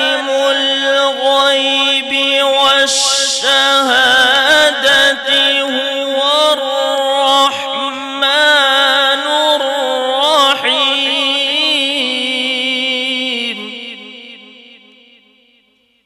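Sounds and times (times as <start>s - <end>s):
man chanting recitation: 0.0s - 15.3s.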